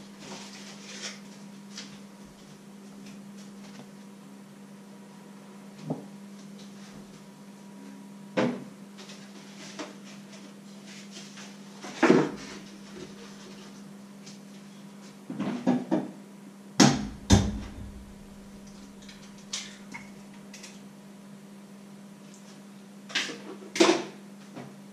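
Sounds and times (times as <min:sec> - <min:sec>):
steady low hum: 0:16.0 - 0:23.1.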